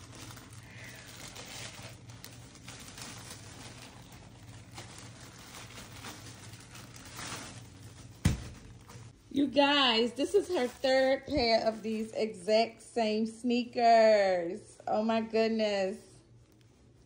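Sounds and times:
plastic bag rustling and crinkling: 0.0s - 12.5s
steady low hum: 0.0s - 17.0s.

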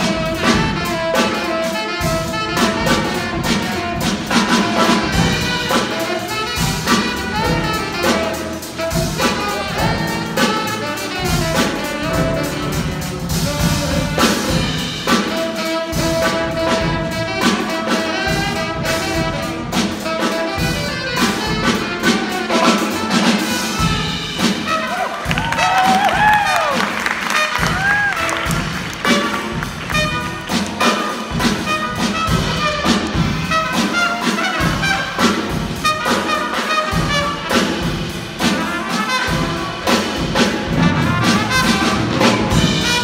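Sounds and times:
jazz combo playing: 0.0s - 43.0s
trumpet: 0.0s - 43.0s.

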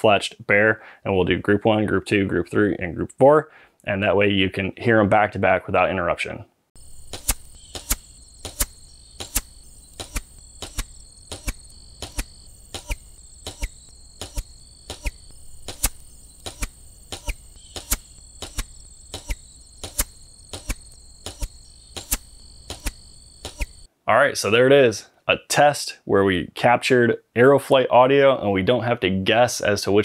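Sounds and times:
insects chirring: 6.8s - 23.9s
arrows flying past: 7.0s - 23.8s.

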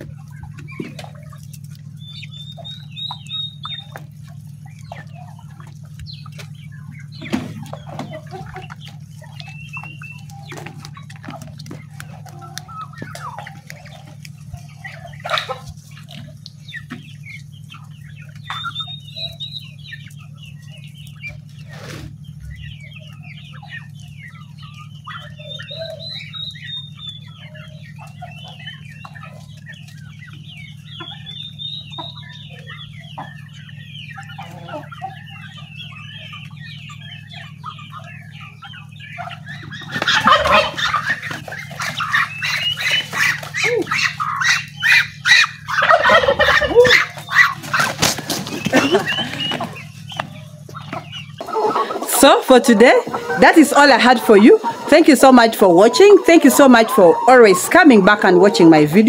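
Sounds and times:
chickens clucking: 0.0s - 59.0s
steady low hum: 0.0s - 59.0s.

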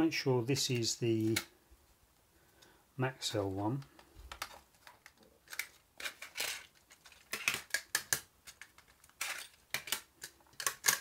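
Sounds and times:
plastic cases clicking on table: 4.3s - 11.0s.

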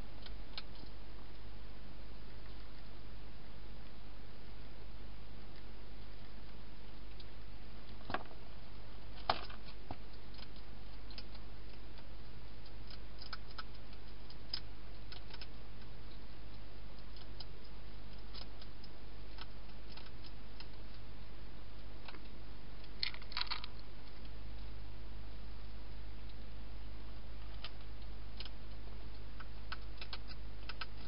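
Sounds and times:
steady low hum: 0.0s - 31.0s
hedgehog crunching food: 9.2s - 24.8s, 27.4s - 31.0s.

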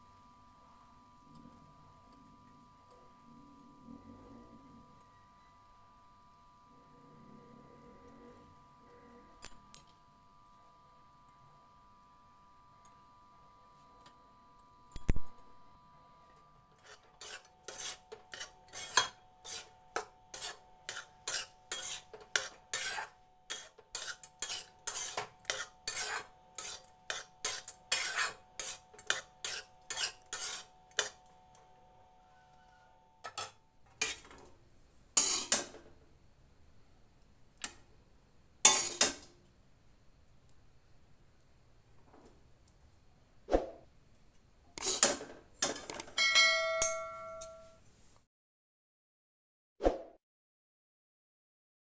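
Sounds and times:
metal spatula scraping rice in pan: 16.8s - 31.3s, 33.2s - 34.4s, 35.2s - 35.8s, 38.6s - 39.3s, 44.8s - 45.8s.

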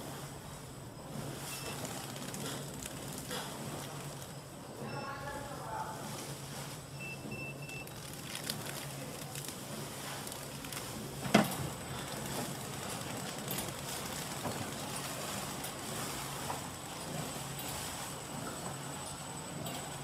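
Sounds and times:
packaging machine humming: 0.0s - 20.0s
control panel beep: 7.0s - 7.9s.

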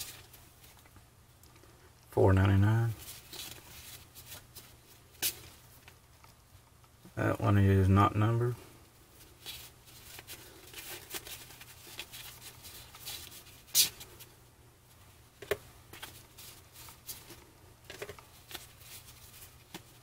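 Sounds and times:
trading cards rustling and clicking: 9.4s - 14.3s, 15.4s - 20.0s.

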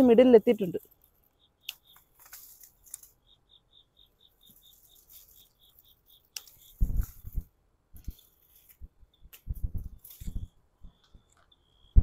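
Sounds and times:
faint insect chirping: 0.0s - 7.4s, 10.1s - 12.0s
soft clicks and rustles: 0.8s - 3.2s.

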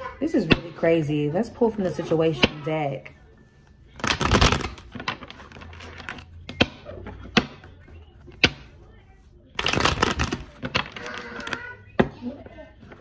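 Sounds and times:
cards being shuffled: 4.0s - 6.4s, 9.5s - 11.6s.

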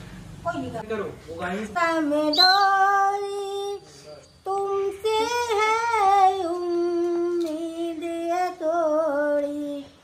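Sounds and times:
woman singing unaccompanied: 1.8s - 3.8s, 4.5s - 10.0s.

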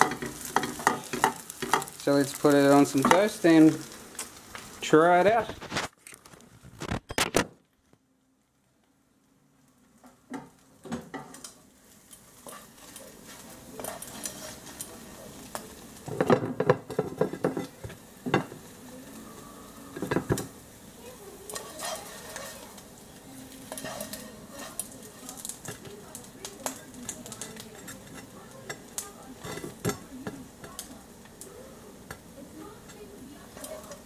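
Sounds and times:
spatula scraping a frying pan: 0.0s - 3.9s, 12.0s - 18.7s, 21.5s - 25.9s, 26.6s - 30.8s
food sizzling faintly: 0.0s - 6.4s, 8.3s - 34.0s.

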